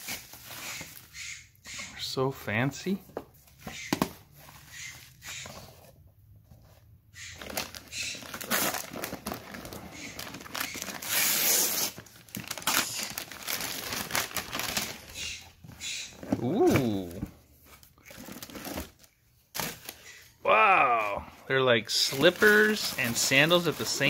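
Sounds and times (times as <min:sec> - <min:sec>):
wrapping paper tearing: 0:07.3 - 0:15.4, 0:22.0 - 0:24.0.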